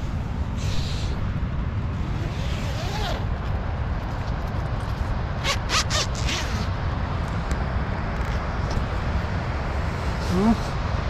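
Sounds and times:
tent zipper pulled open: 2.1 - 3.3, 5.4 - 6.7
tent fabric rustling: 2.2 - 3.2.

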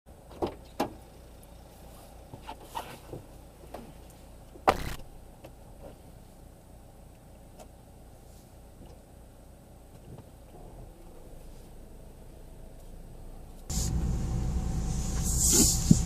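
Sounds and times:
faint low hum: 3.2 - 16.0
loud thump: 4.7 - 5.2.

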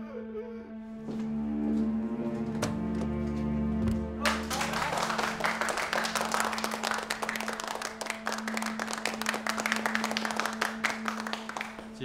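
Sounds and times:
people applauding: 4.2 - 12.0.

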